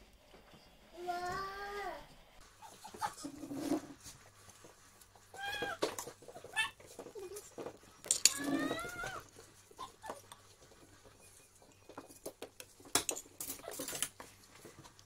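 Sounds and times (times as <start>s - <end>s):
cat meowing: 5.3s - 5.9s, 8.3s - 9.3s.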